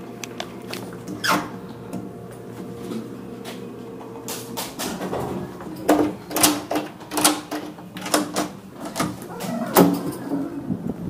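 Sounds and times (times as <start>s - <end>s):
door lock and handle clicks: 4.8s - 10.2s.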